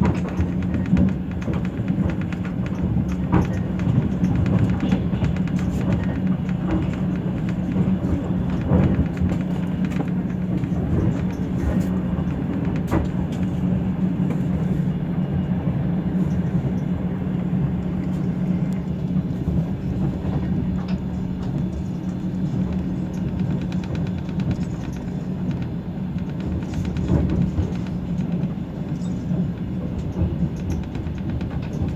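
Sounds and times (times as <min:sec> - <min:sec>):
train rumbling: 0:00.0 - 0:31.9.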